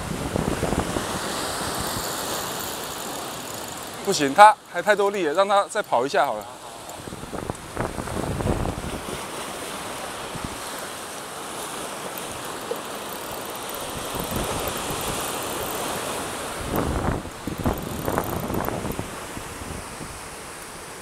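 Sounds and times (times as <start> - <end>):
wind buffeting microphone: 0.0 - 2.7, 6.9 - 9.4, 13.9 - 15.3, 16.4 - 20.4
sea waves washing: 0.0 - 21.0.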